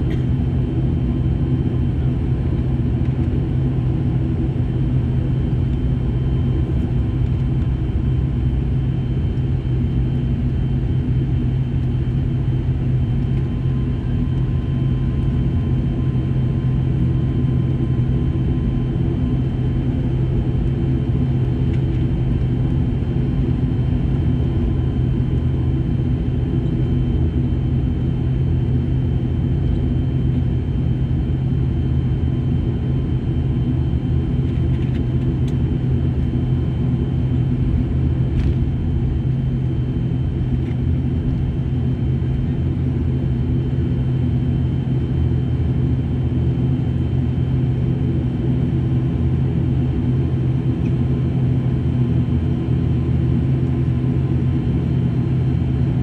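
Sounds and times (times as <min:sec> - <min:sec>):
thin high engine whine: 0:00.0 - 0:55.9
turboprop engines droning: 0:00.0 - 0:56.0.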